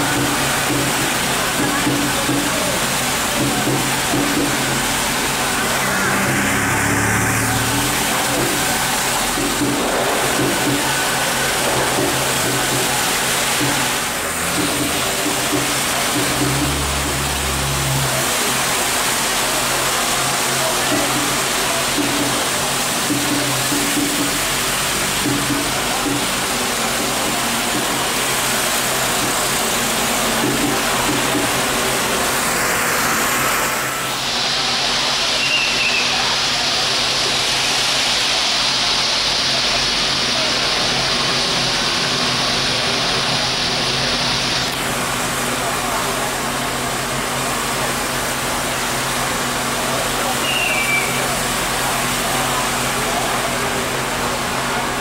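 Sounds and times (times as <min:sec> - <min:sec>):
heavy rain: 0:00.0 - 0:55.0
low hum: 0:05.1 - 0:09.6.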